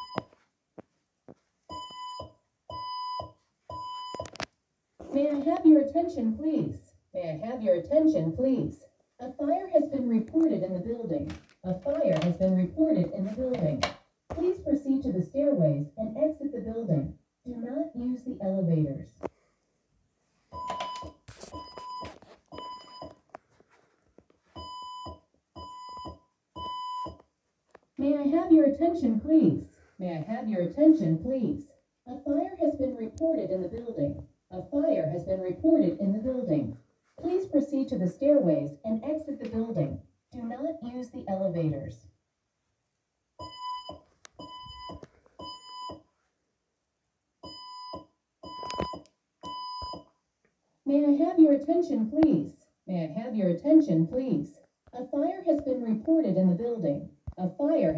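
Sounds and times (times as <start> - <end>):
fire alarm beeps: 0.0 - 0.4, 1.7 - 4.4, 20.5 - 23.2, 24.6 - 27.2, 43.4 - 46.0, 47.4 - 50.1.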